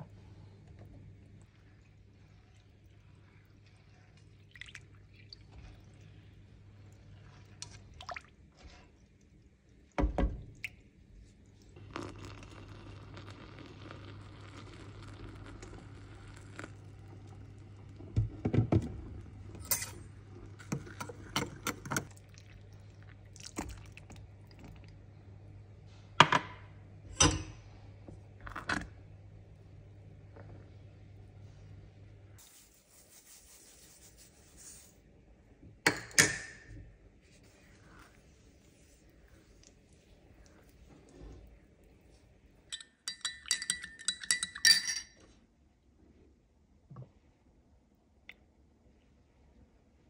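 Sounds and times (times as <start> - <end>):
low steady hum: 0.0 - 50.0
spoon clinking against glass mug: 19.6 - 20.0, 42.7 - 45.2.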